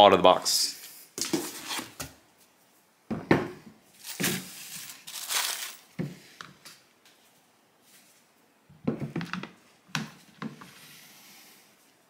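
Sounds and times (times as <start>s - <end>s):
cardboard packing rustling: 3.9s - 6.0s.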